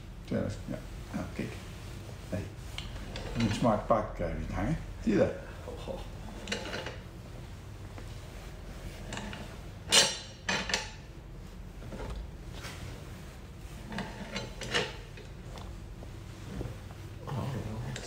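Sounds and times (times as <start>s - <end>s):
metal fittings scraping and clinking: 2.8s - 3.7s, 6.2s - 7.0s, 13.8s - 15.3s.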